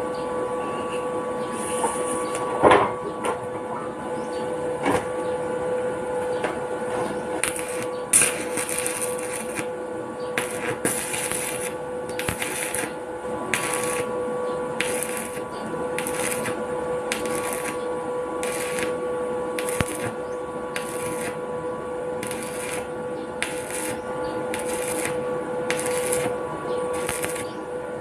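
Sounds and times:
steady hum: 0:00.0 - 0:28.0
welding arc sizzling and crackling: 0:06.9 - 0:28.0.

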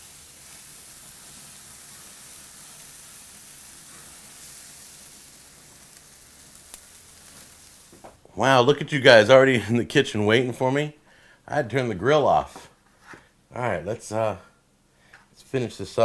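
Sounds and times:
chicken sizzling on a grill: 0:00.0 - 0:08.2.

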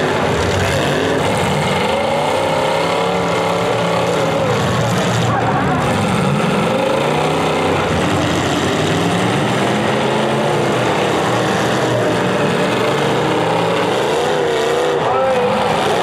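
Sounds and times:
car engines revving: 0:00.0 - 0:16.0.

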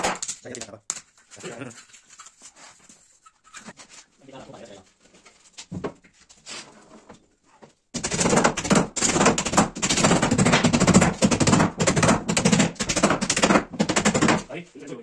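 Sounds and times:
hammers driving nails into wood: 0:00.0 - 0:00.4, 0:07.9 - 0:14.5.

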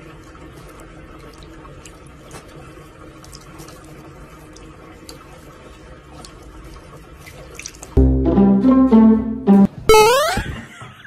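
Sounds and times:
cat lapping water: 0:00.0 - 0:08.0.

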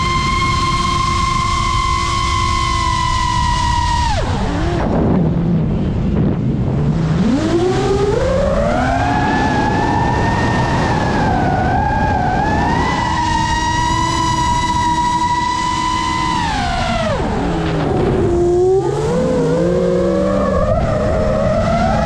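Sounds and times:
quadcopter motors whining: 0:00.0 - 0:06.2, 0:06.8 - 0:22.0.

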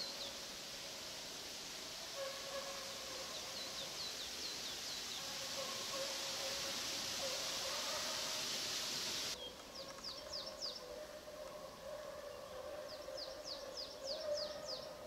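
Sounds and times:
songbird chirping: 0:00.0 - 0:00.6, 0:02.1 - 0:15.0
rushing hiss: 0:00.0 - 0:09.4.

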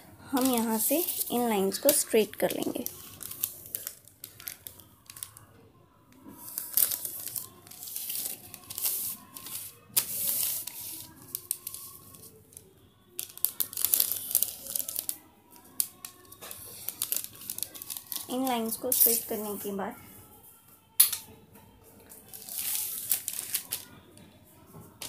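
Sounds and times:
paper rustling and crinkling: 0:00.4 - 0:05.5, 0:06.3 - 0:12.6, 0:13.2 - 0:19.7, 0:22.0 - 0:23.9.

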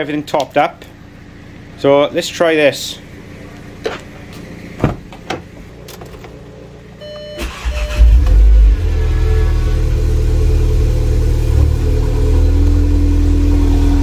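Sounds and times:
car engine starting and idling: 0:00.2 - 0:14.0
short electronic tone: 0:07.0 - 0:10.0.

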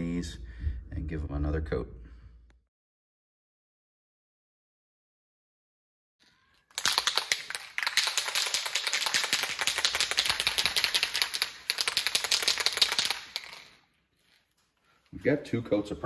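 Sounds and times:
spray can rattling while shaken: 0:06.6 - 0:14.4.

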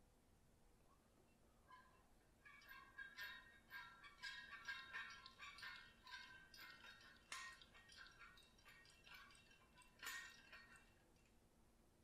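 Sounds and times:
faint metallic clinks and rattles: 0:01.8 - 0:11.4.

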